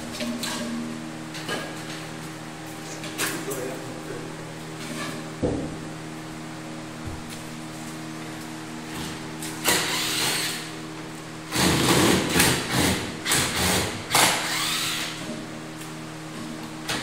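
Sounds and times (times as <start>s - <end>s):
cordless drill whining: 13.6s - 15.2s.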